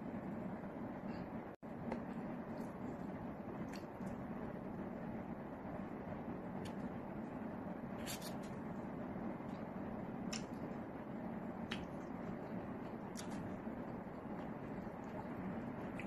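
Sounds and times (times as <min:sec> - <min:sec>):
steady background noise: 0:00.0 - 0:16.0.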